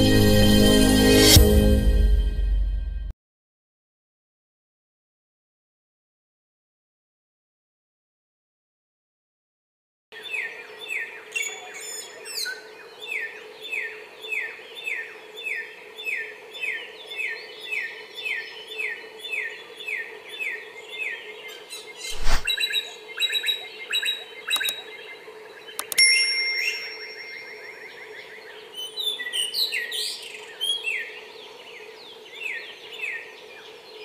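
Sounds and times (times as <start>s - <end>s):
bird whistling song: 21.8s - 25.0s, 25.7s - 31.1s
clicks: 24.5s - 24.8s, 25.8s - 26.1s.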